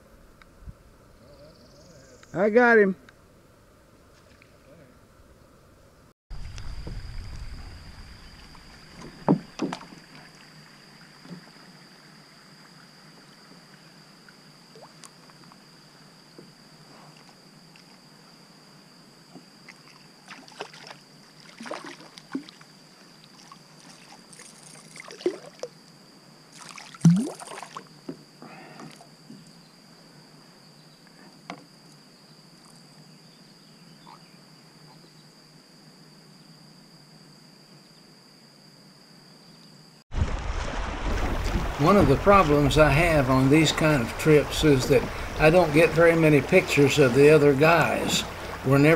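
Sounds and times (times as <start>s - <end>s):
fish splashing in water: 20.2s - 22.6s, 26.5s - 27.8s, 40.1s - 48.7s.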